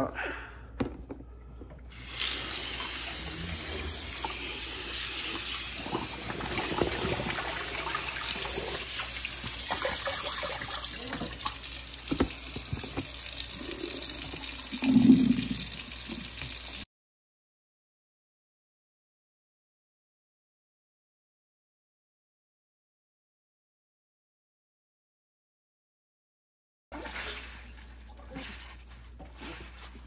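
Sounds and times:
tap water running: 0:00.8 - 0:16.9
water pouring into a sink: 0:01.9 - 0:16.8, 0:26.9 - 0:28.9.

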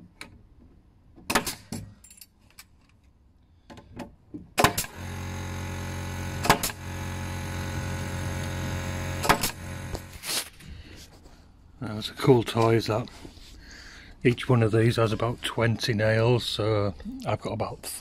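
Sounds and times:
pneumatic nailer firing: 0:01.3 - 0:01.8, 0:04.6 - 0:10.4
mechanical drone with low hum: 0:04.8 - 0:10.2.

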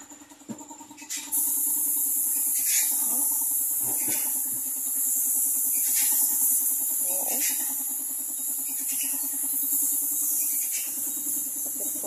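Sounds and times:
steady low hum: 0:00.0 - 0:12.0
spray gun hissing: 0:01.3 - 0:12.0.

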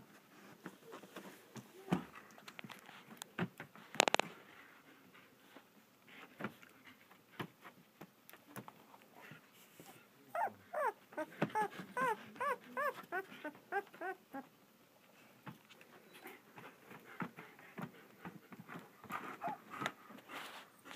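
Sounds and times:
puppies whimpering: 0:10.4 - 0:14.4, 0:19.4 - 0:19.6.

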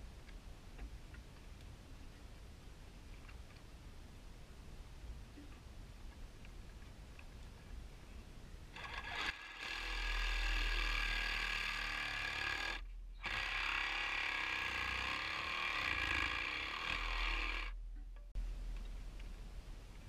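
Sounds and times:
pipe being cut by hand: 0:08.8 - 0:17.8.

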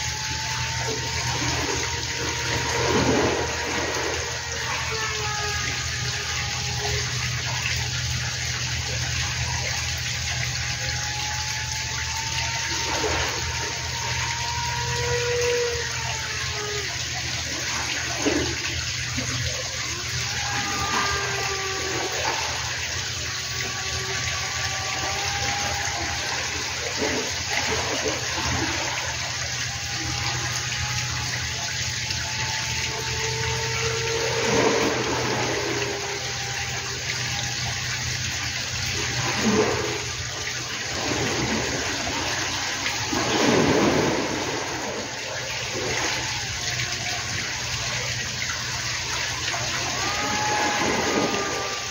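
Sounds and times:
distant rc plane motor whine: 0:00.0 - 0:51.9.

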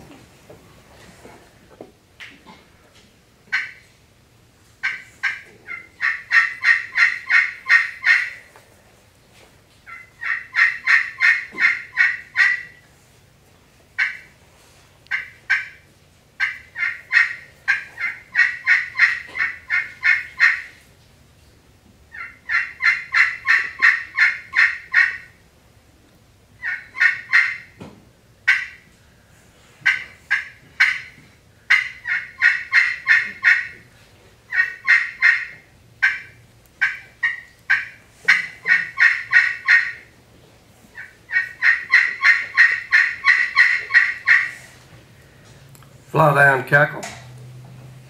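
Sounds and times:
turkey call yelps: 0:03.5 - 0:03.8, 0:04.8 - 0:08.4, 0:09.9 - 0:12.8, 0:14.0 - 0:14.3, 0:15.1 - 0:15.8, 0:16.4 - 0:20.8, 0:22.1 - 0:25.4, 0:26.6 - 0:27.8, 0:28.5 - 0:28.9, 0:29.8 - 0:33.8, 0:34.5 - 0:40.2, 0:40.9 - 0:44.8.

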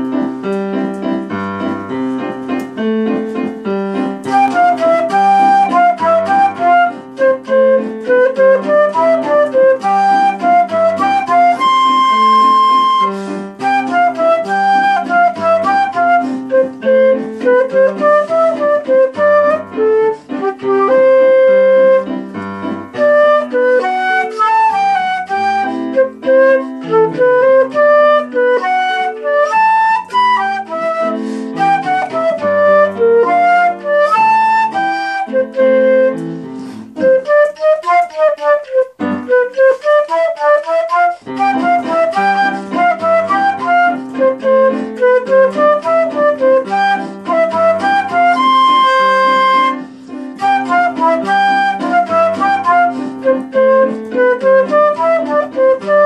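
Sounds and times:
flute playing melody: 0:00.0 - 0:56.0
piano accompaniment: 0:00.0 - 0:56.0.

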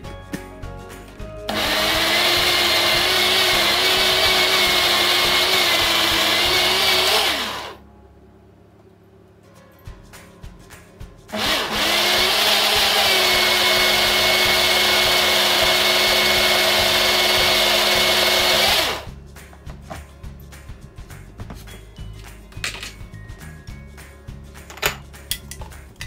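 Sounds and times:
blender motor running: 0:01.5 - 0:07.8, 0:11.3 - 0:19.1.

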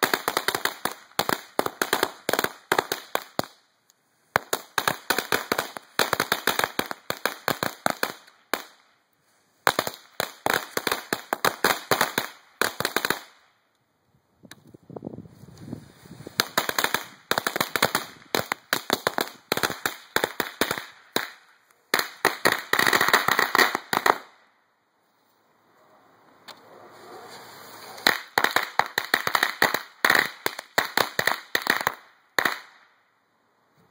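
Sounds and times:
firecrackers popping in strings: 0:27.7 - 0:32.9.

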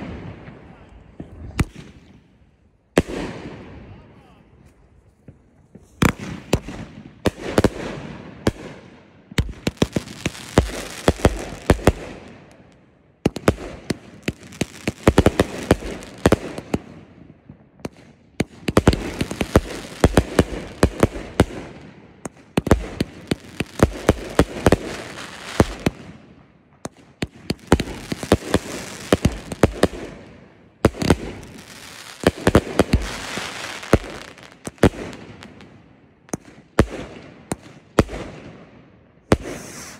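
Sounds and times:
fireworks bangs: 0:05.2 - 0:12.5, 0:13.2 - 0:39.9
fireworks crackling hiss: 0:31.0 - 0:34.8, 0:39.3 - 0:39.9.

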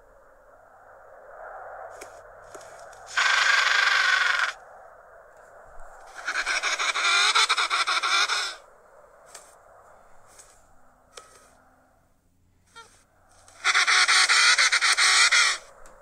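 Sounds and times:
penguin calls: 0:03.1 - 0:04.6, 0:06.1 - 0:08.6, 0:12.7 - 0:15.6.

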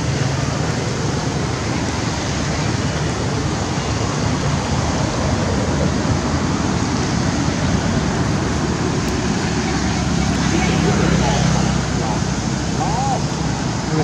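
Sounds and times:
steady rushing noise: 0:00.0 - 0:14.0.

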